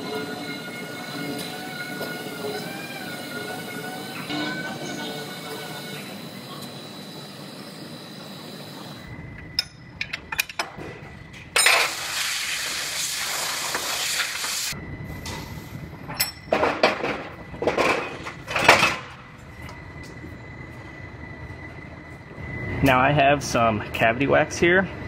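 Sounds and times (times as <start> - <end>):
steel fixtures clinking and clanking: 9.4 - 12.0, 16.1 - 19.2
loud steady hiss: 11.6 - 15.8.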